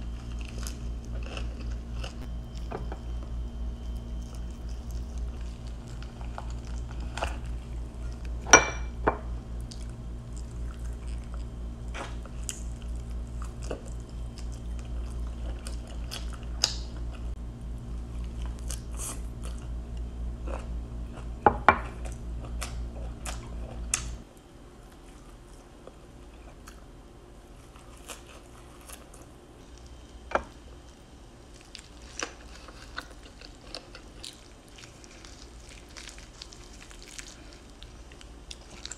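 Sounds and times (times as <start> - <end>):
person chewing food: 0.0 - 8.5, 9.6 - 17.3, 27.5 - 38.9
low background hum: 0.0 - 38.9.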